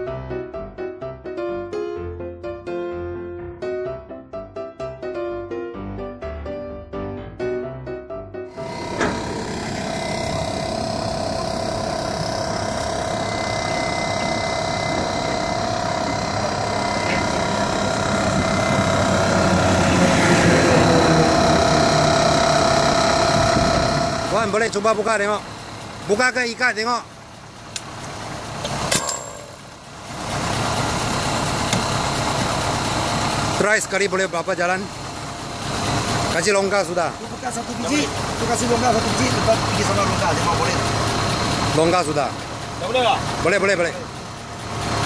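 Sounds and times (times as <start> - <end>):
mechanical running noise: 8.5 - 26.4, 27.1 - 33.6
machinery whine: 8.5 - 45.0
sharp metallic clink: 28.9 - 29.7.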